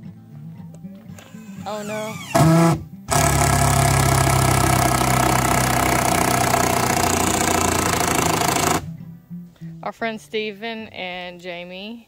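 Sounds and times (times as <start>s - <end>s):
motor running loudly: 1.2s - 8.9s.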